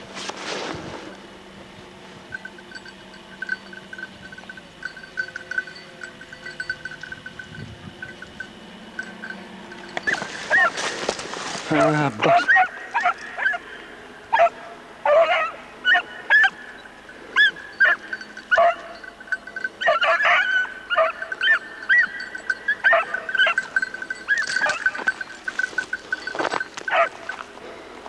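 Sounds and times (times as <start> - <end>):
thin high tone: 2.1 - 14.5, 15.3 - 27.7
dog baying and yelping: 10.0 - 10.8, 11.7 - 13.7, 14.3 - 16.8, 17.4 - 27.4.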